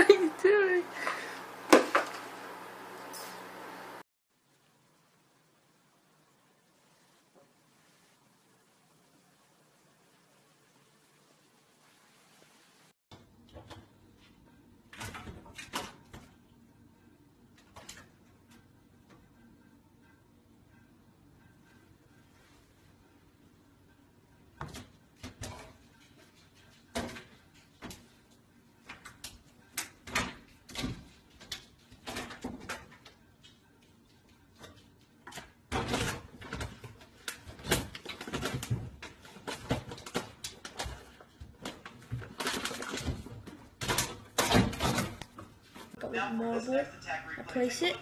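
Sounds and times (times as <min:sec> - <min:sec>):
plastic package rustling: 0:37.2 - 0:44.4.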